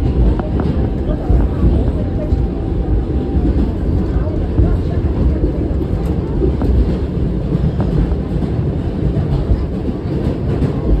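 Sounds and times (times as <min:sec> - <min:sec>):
subway train rumbling on rails: 0:00.0 - 0:11.0.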